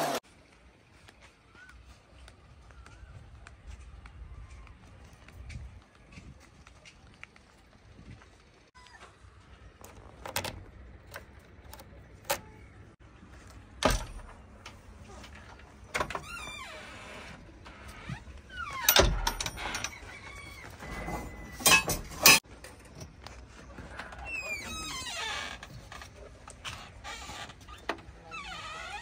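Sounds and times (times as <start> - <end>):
door latch and door clunking open: 9.8 - 12.6, 13.8 - 22.4.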